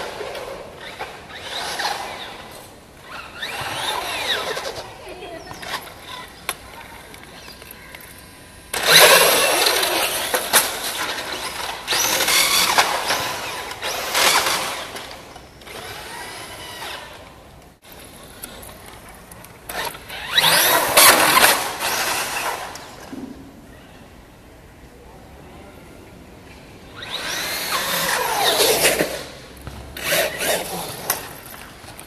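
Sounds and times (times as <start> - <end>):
rc truck motor whine: 0.0 - 4.9, 8.7 - 17.4, 19.7 - 23.0, 27.0 - 29.4
tyre noise: 0.0 - 23.8, 26.9 - 32.0.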